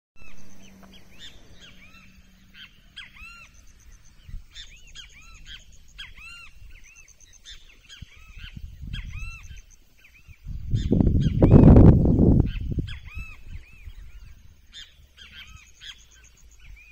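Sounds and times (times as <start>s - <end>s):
low rumble: 0.2s - 7.4s
birds singing and calling: 0.2s - 16.9s.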